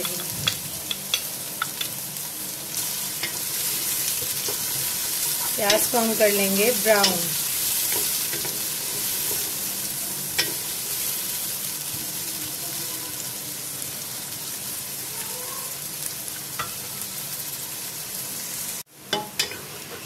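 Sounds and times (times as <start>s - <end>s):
onions sizzling in hot oil: 0.0s - 20.0s
spoon stirring and scraping: 7.0s - 9.7s.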